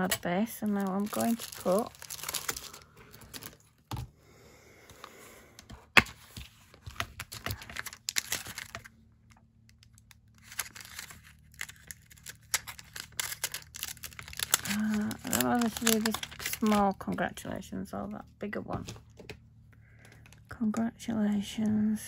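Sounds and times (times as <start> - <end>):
plastic crinkling: 0.0 - 3.9, 6.7 - 9.0, 9.7 - 17.3.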